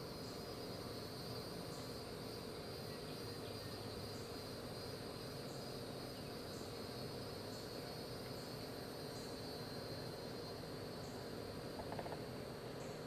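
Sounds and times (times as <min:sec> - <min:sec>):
faint outdoor background hiss: 0:00.0 - 0:13.0
insect short chirp: 0:00.0 - 0:13.0
insect high trill: 0:06.4 - 0:13.0.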